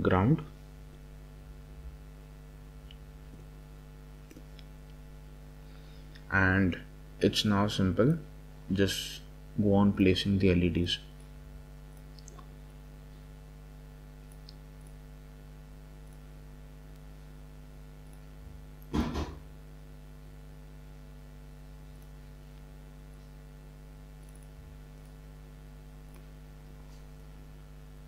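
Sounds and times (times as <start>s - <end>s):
low electrical hum: 0.0s - 28.0s
computer mouse clicks: 24.2s - 25.2s.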